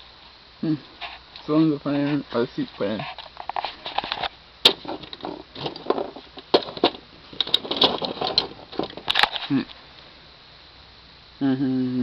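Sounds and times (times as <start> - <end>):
handling clicks and rustles: 1.0 - 9.8.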